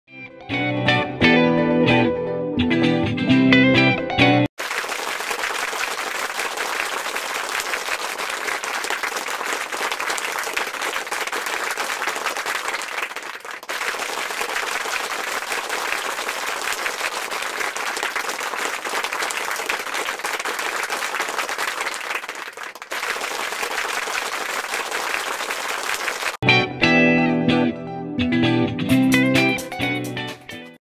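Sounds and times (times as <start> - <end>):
crowd applauding: 4.6 - 26.4.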